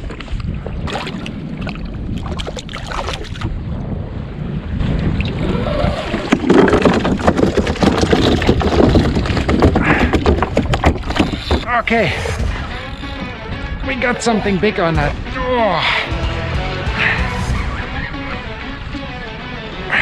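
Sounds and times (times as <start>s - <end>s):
knocks and rattles of fish: 0.0s - 3.6s, 4.8s - 13.1s
water slapping against kayak: 0.0s - 3.6s, 4.8s - 13.0s
wind buffeting microphone: 0.0s - 16.2s.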